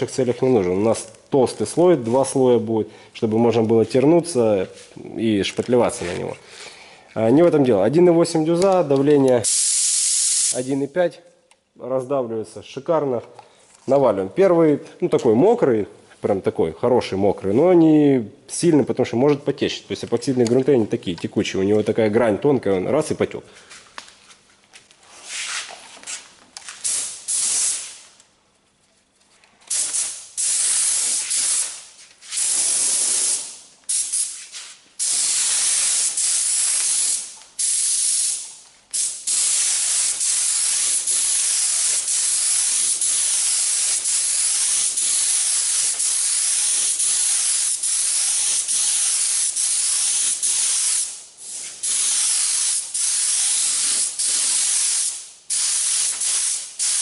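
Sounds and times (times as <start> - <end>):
paint spray gun hissing: 9.4 - 10.6, 29.7 - 34.4, 35.0 - 57.0.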